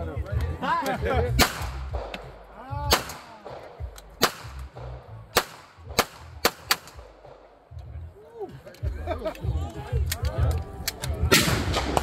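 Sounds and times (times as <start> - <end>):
pistol shots: 1.4 - 7.6, 11.3 - 12.0.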